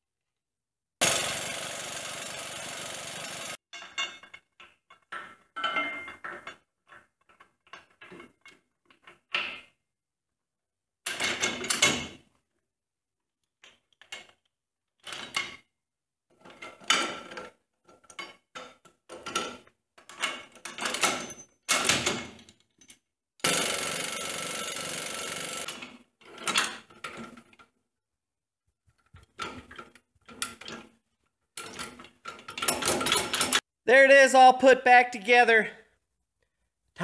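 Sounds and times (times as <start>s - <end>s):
metal parts clinking and rattling: 31.6s - 33.6s.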